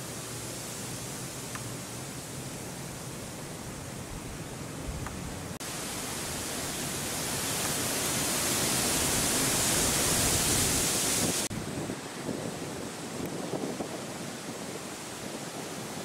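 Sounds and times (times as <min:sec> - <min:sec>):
rain hissing: 0:00.0 - 0:16.0
wind on microphone: 0:04.0 - 0:16.0.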